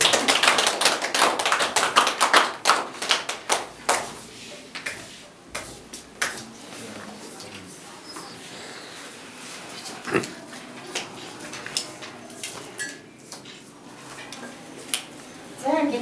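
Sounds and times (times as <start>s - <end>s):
audience applause: 0.0s - 3.4s.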